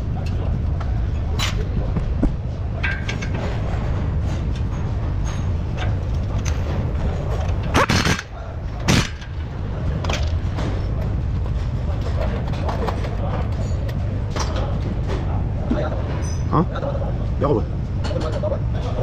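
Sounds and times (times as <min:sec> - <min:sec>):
air tool bursts: 0:07.8 - 0:08.3.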